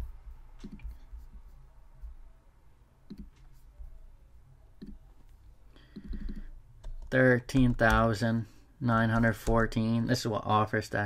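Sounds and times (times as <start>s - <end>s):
faint low hum: 0.0s - 11.0s
computer mouse clicks: 0.6s - 1.0s, 3.1s - 3.5s, 4.8s - 8.1s.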